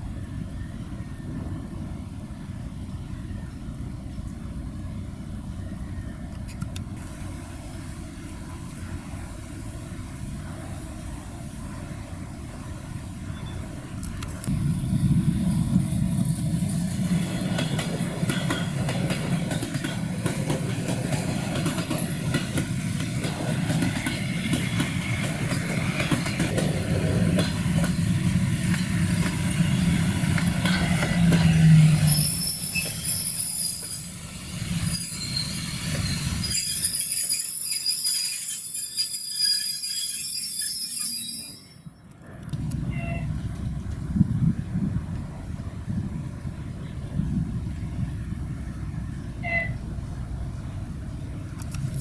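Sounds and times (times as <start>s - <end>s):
freight train rail rumble: 0.0s - 52.0s
wagon wheels squealing: 30.7s - 42.0s.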